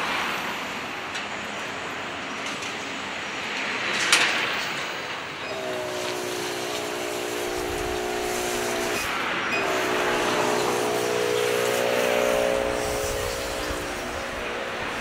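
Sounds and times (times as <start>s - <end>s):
droning hum of several notes: 5.4s - 15.0s.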